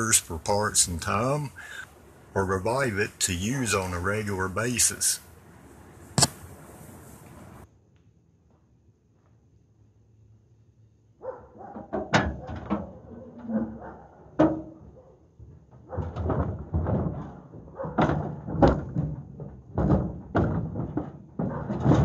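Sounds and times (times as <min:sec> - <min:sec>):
mower banging on metal truck bed: 0:15.9 - 0:22.0.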